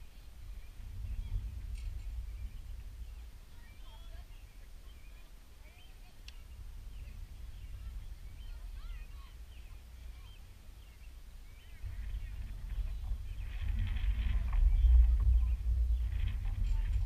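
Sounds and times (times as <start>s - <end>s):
faint high chirping calls: 0.0s - 17.0s
wind rumbling on microphone: 0.0s - 17.0s.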